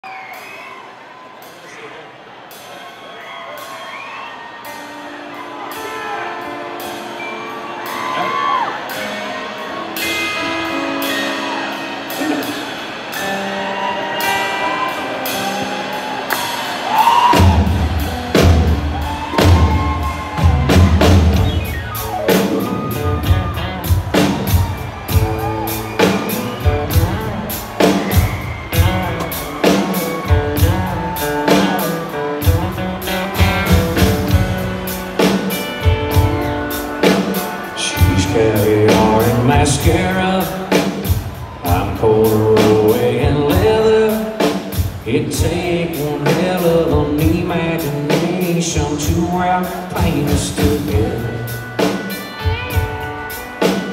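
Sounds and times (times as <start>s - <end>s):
drums: 0.0s - 53.9s
electric guitar: 4.7s - 53.9s
bass: 14.7s - 37.2s, 37.8s - 53.9s.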